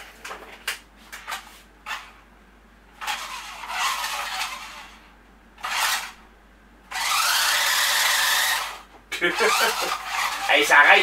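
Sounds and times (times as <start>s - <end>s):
toy car electric motors whirring: 1.2s - 2.1s, 3.0s - 5.0s, 5.6s - 6.2s, 6.9s - 11.0s.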